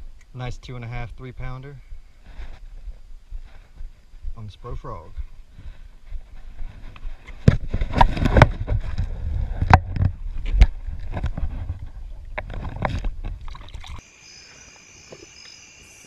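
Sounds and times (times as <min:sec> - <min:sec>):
water sloshing and splashing: 0:10.9 - 0:14.0.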